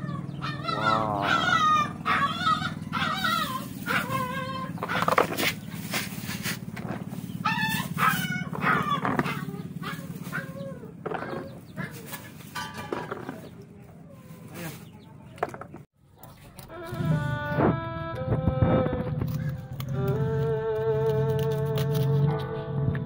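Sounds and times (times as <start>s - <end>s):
domestic animal calls: 0.0s - 6.0s, 6.7s - 13.5s
steady low hum: 0.0s - 23.0s.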